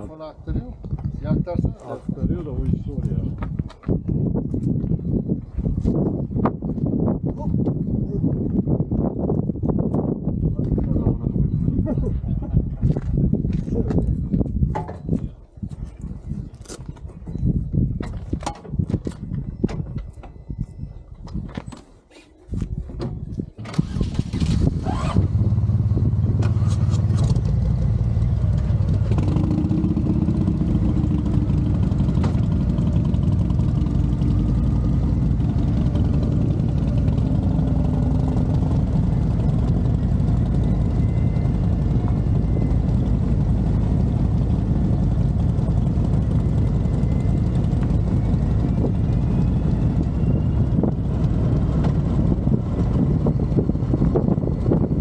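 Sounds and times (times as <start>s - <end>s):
motorcycle engines running: 24.7s - 55.0s.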